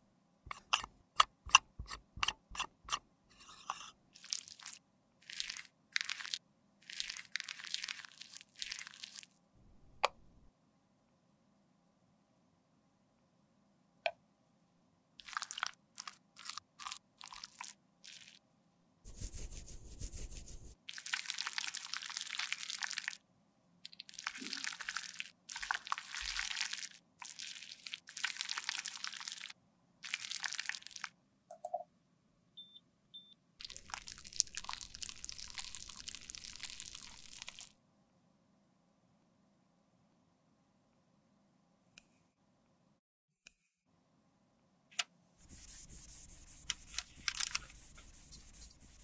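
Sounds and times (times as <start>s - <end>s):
scraping makeup in metal pan: 0.5s - 4.0s, 45.4s - 49.0s.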